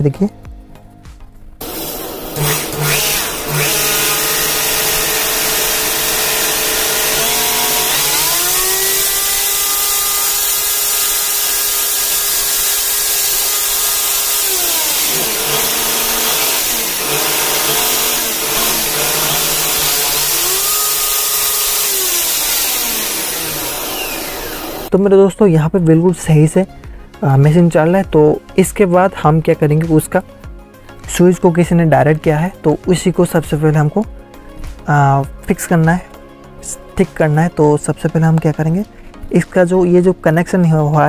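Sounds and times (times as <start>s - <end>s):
electric motor whining: 1.6s - 24.9s.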